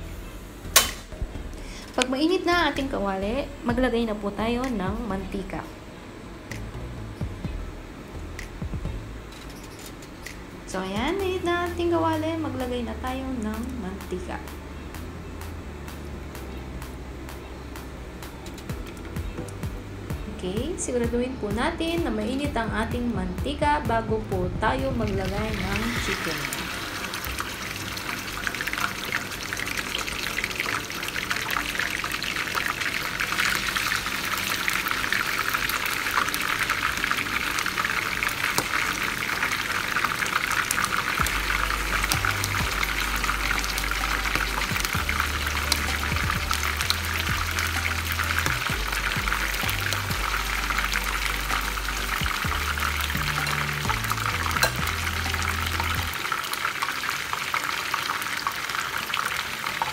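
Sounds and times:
background music bass line: 0.0 - 9.4, 10.2 - 56.4
chicken deep-frying in oil: 24.8 - 59.9.

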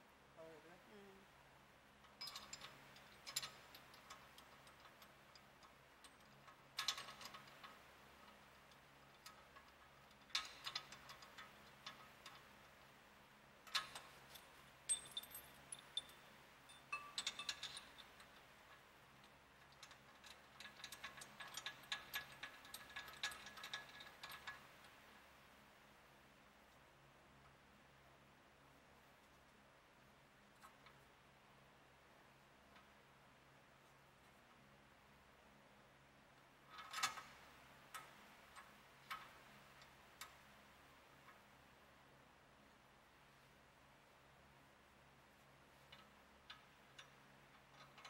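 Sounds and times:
metallic clinks of tools: 2.1 - 4.2, 13.7 - 18.2.

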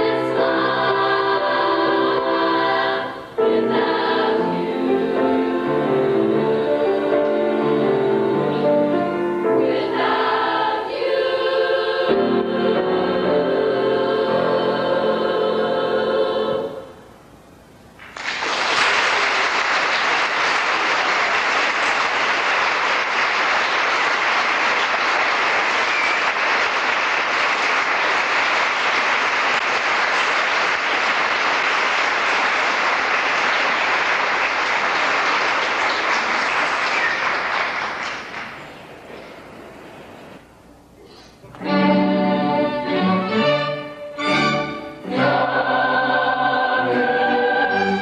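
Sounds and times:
choir holding a chord: 0.0 - 17.2, 41.6 - 48.0
audience applauding: 18.0 - 39.1.

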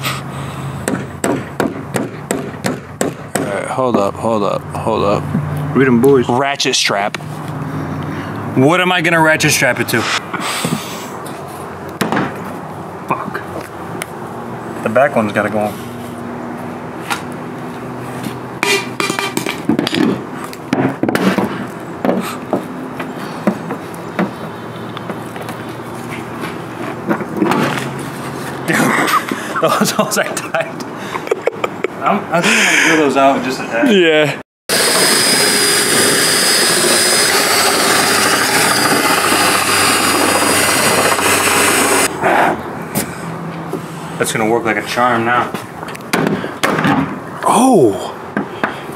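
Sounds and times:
cordless drill cutting metal: 34.7 - 42.1.

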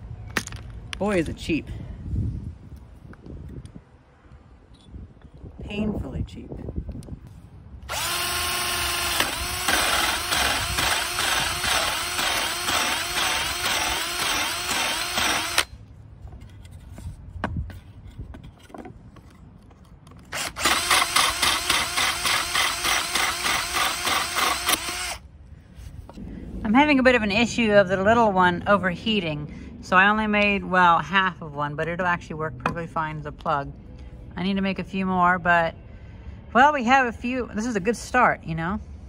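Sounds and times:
cordless drill cutting into wood: 7.8 - 15.8, 20.3 - 25.2.

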